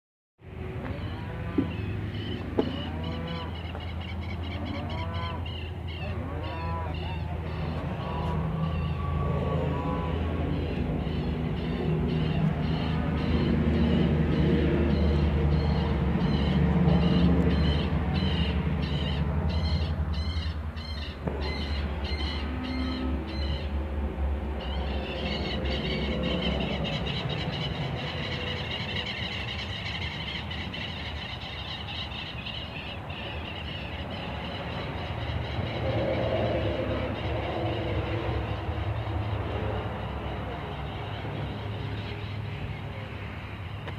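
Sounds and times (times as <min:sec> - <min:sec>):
low mechanical drone: 0:00.4 - 0:43.9
wavering high squeal: 0:06.5 - 0:11.5.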